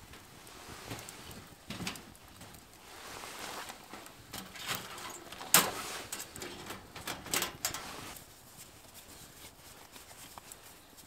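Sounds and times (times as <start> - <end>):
metal stove door clicks and knocks: 4.3 - 7.8.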